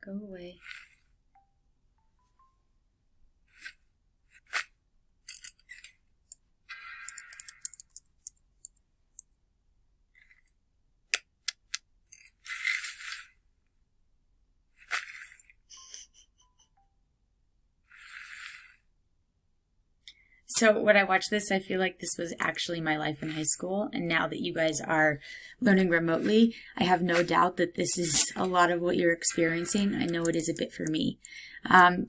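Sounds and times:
sharp clicks and clinks: 5.3 - 9.3.

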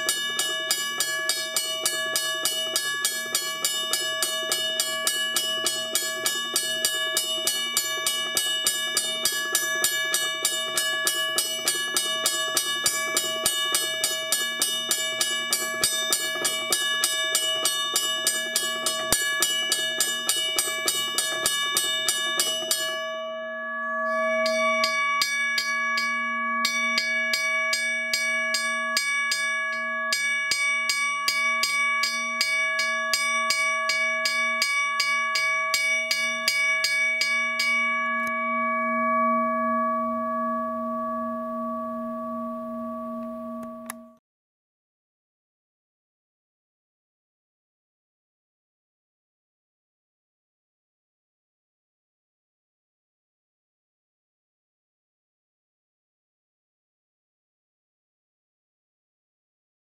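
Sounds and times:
second crossing bell ringing: 0.0 - 23.8
railway crossing bell ringing: 0.0 - 44.0.

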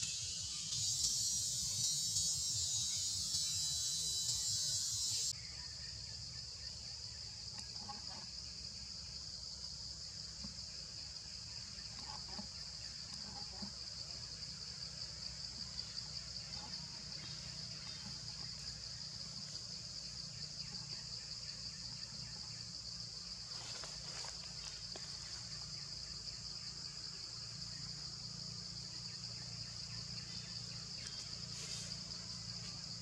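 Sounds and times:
high-pitched insect drone: 0.0 - 33.0.

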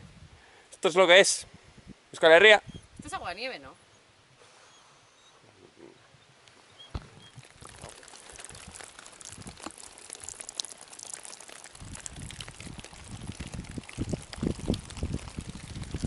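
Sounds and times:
water dripping and trickling: 7.0 - 16.0.

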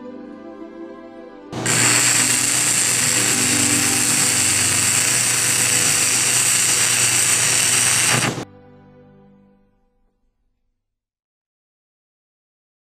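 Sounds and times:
soft music with held tones: 0.0 - 10.4
machine humming and hissing: 1.6 - 8.4.

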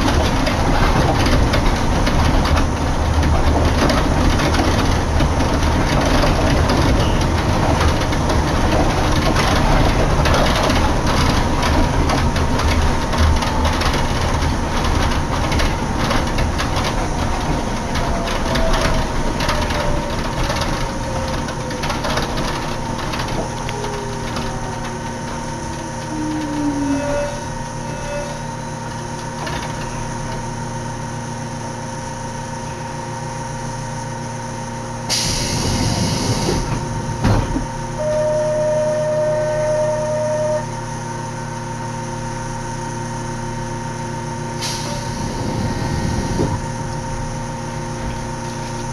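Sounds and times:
train car running: 0.0 - 48.9
braking whine falling in pitch: 35.1 - 40.9.

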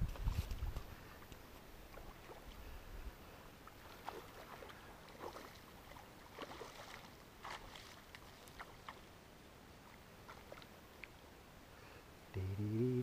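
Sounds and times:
fish splashing in water: 3.7 - 9.0.

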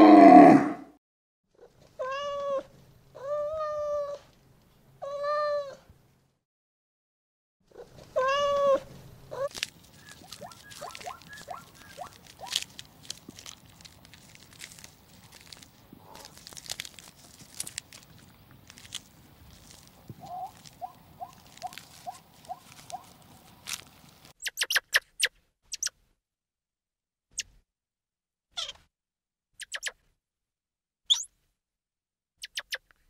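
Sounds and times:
deep groaning animal call: 0.0 - 0.9
short mewing calls: 8.2 - 12.6, 20.1 - 23.2
faint clicks and scuffs: 9.4 - 24.4.

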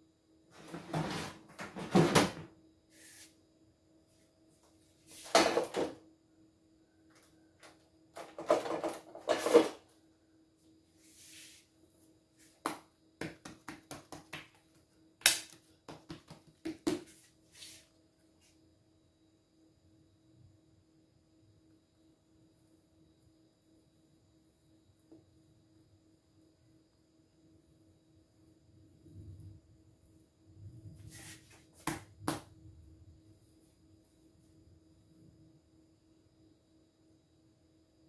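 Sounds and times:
faint steady hum: 2.4 - 38.0
hands working dough: 12.4 - 17.9, 31.0 - 32.5.

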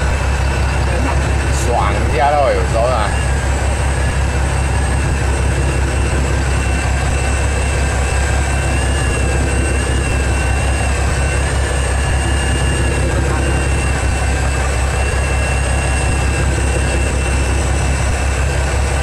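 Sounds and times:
boat engine droning: 0.0 - 19.0
faint engine whine: 0.0 - 19.0.

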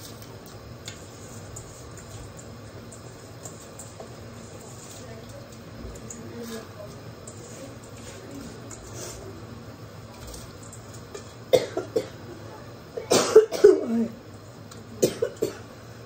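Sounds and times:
person coughing: 11.5 - 12.2, 13.0 - 14.2, 15.0 - 15.6.

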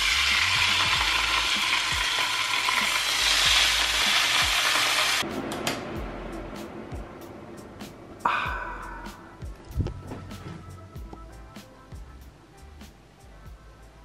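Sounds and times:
meat sizzling in frying pan: 0.0 - 5.2
low hum: 5.2 - 11.5.

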